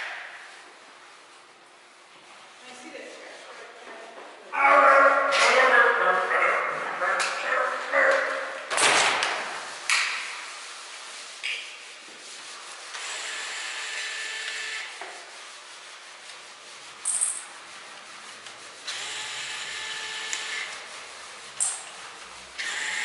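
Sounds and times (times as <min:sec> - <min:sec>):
electric screwdriver whirring: 0:13.0 - 0:14.9, 0:18.9 - 0:20.7, 0:22.6 - 0:23.0.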